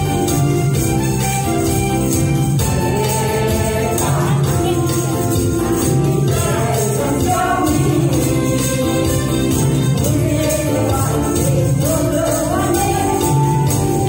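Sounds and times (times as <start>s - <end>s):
tambourines jingling: 0.0s - 14.0s
upbeat backing track: 0.0s - 14.0s
woman singing into a microphone: 10.0s - 14.0s.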